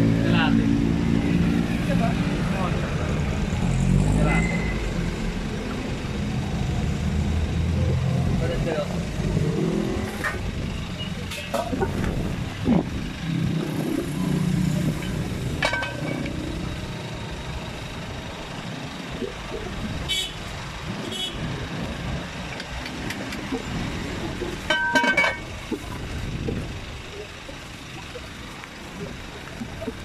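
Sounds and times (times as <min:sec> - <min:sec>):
road traffic rumble: 0:00.0 - 0:30.0
metal pot lid and ladle clinks: 0:24.7 - 0:25.4.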